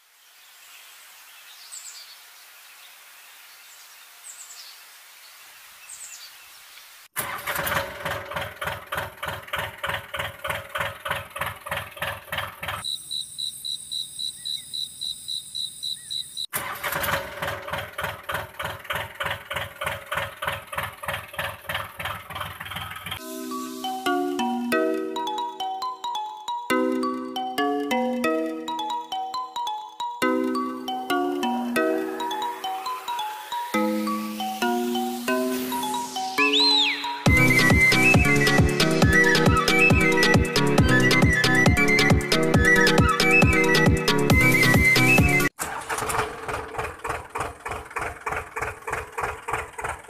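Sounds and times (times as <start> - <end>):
electronic tractor engine chugging: 7.2 - 12.9, 16.5 - 23.3, 35.2 - 50.0
bird chirps: 12.8 - 16.5, 32.2 - 43.7
marimba-like music: 23.2 - 45.5.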